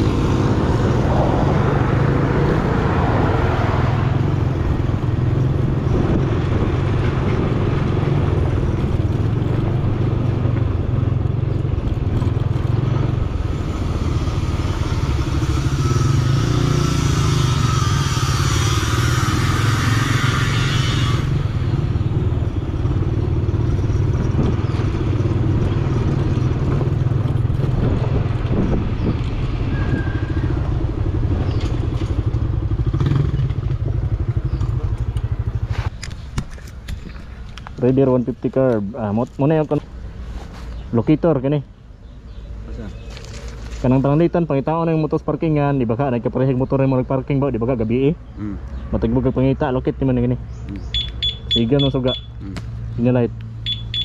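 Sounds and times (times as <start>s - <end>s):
road noise on dirt lane: 0.0s - 54.0s
scooter engine running: 53.6s - 54.0s.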